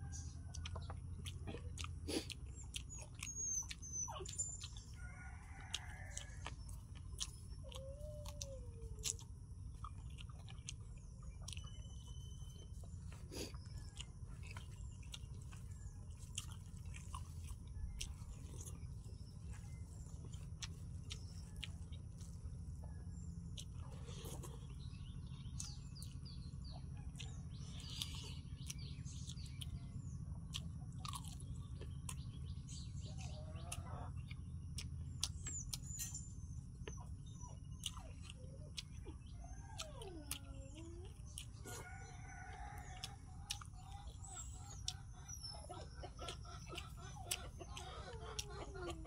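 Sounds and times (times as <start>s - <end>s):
birds chirping: 0.0s - 49.0s
low background hum: 0.0s - 49.0s
man chewing: 0.1s - 49.0s.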